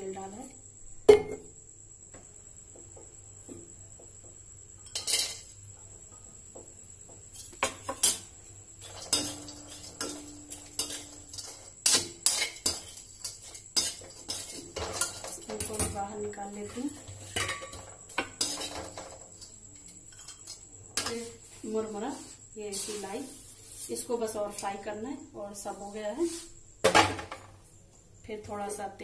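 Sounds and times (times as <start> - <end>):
metal spoon scraping a pan: 7.3 - 23.9
slices clattering into pan: 7.4 - 16.0, 17.2 - 21.2.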